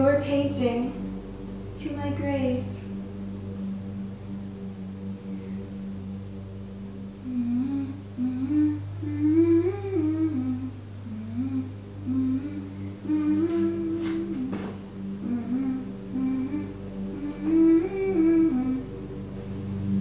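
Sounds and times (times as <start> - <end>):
steady low hum: 0.0 - 20.0
woman humming a slow tune: 1.8 - 3.0, 7.0 - 20.0.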